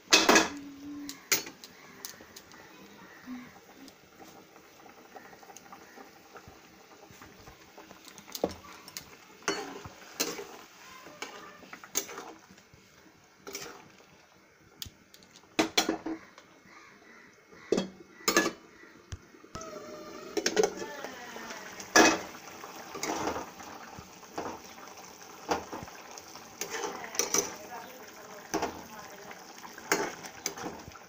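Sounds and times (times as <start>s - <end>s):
metal utensil scraping metal pan: 9.4s - 10.6s, 13.4s - 13.9s
metal lid clanking onto pan: 17.7s - 18.6s.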